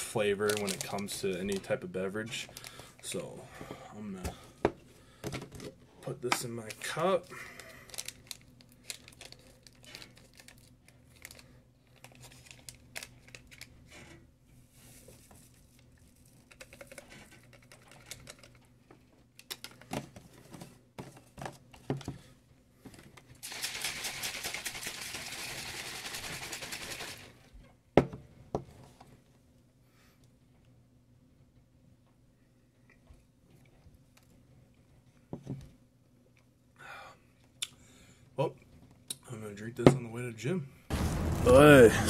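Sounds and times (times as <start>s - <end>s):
shaker bottle shaking: 0.4s - 1.6s, 16.1s - 18.6s, 23.4s - 27.4s
plastic crinkles and clicks: 0.4s - 1.8s, 6.3s - 13.8s, 16.1s - 19.9s.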